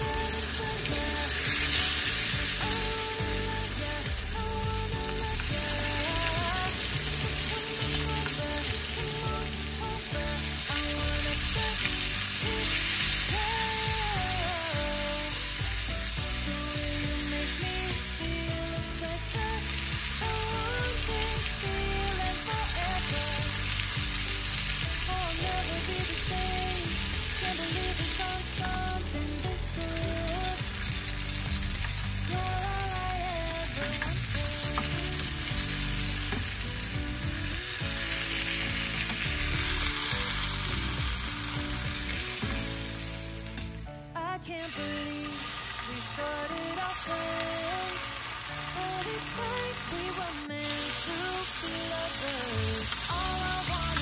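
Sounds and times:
chicken frying in oil: 0.0s - 43.5s, 44.6s - 54.0s
background music: 0.0s - 54.0s.

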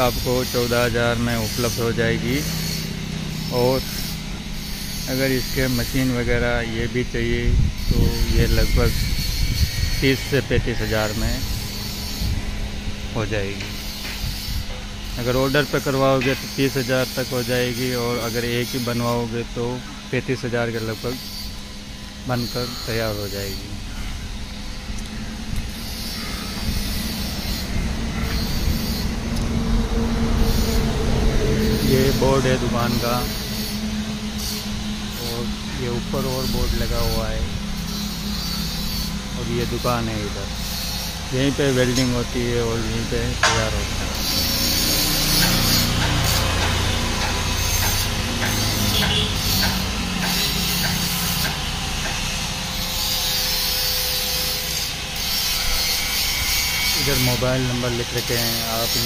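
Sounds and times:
power tool buzzing on metal: 0.0s - 59.0s
low outdoor rumble: 23.7s - 44.8s.

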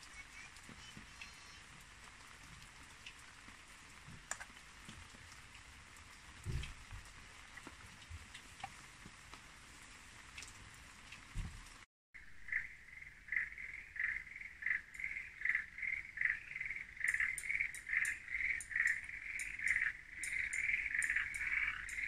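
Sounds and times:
frogs calling: 12.2s - 22.0s
sharp high ticks: 17.0s - 22.0s.

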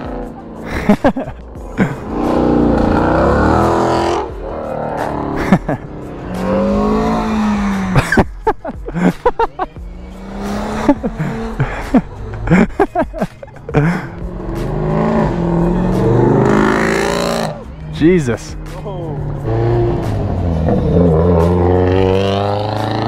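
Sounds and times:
cars accelerating past: 1.8s - 8.1s, 10.0s - 12.5s, 13.9s - 17.9s, 19.2s - 23.0s.

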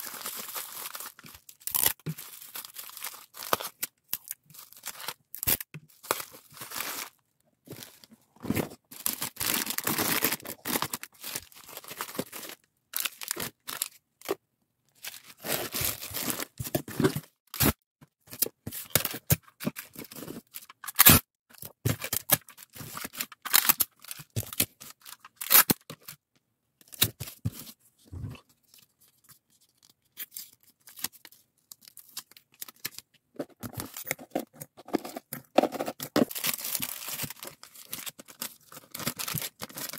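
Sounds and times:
bubble wrap crinkling: 0.0s - 14.0s, 33.6s - 39.9s
packing tape tearing: 20.8s - 21.2s, 23.4s - 23.9s, 25.4s - 25.8s.

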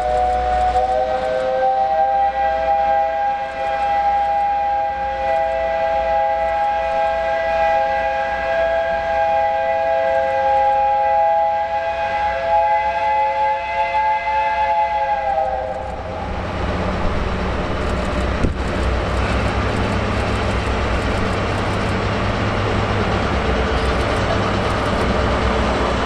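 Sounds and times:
steam locomotive whistle: 0.0s - 16.3s.

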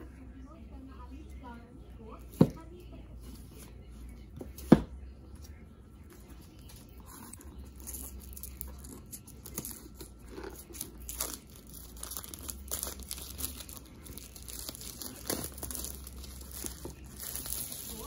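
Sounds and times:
plastic shrink-wrap crinkling and tearing: 7.8s - 18.0s.

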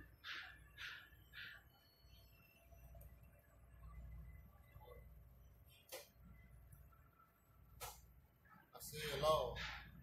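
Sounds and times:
faint low hum: 1.8s - 8.9s.

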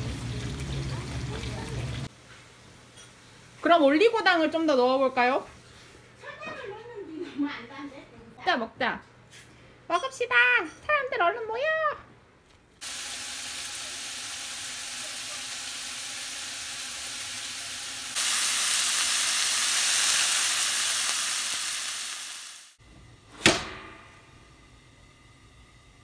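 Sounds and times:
meat sizzling in frying pan: 12.8s - 22.8s
sharp metal clang: 23.4s - 24.3s.

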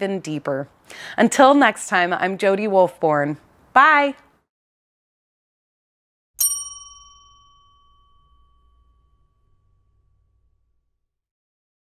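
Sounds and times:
bright bell chime: 6.4s - 10.3s.

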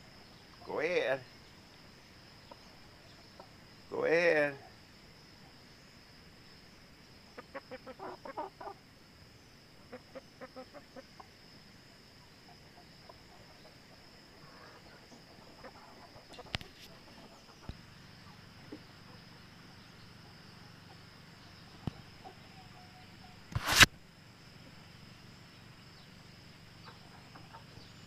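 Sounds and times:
hens clucking: 7.3s - 8.8s, 9.8s - 11.4s, 12.4s - 19.3s, 26.8s - 27.9s
sharp click: 23.5s - 23.9s.

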